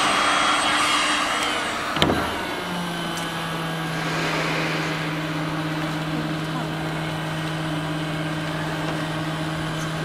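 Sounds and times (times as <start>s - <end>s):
low steady hum: 3.8s - 7.9s.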